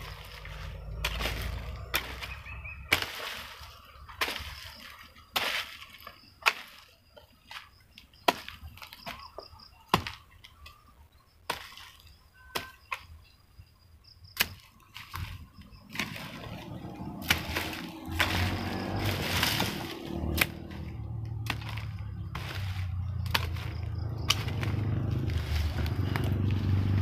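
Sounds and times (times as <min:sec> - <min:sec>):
hoe chopping into soil: 0:00.0 - 0:10.8, 0:11.4 - 0:13.2, 0:14.3 - 0:27.0
scraping and rustling: 0:14.5 - 0:27.0.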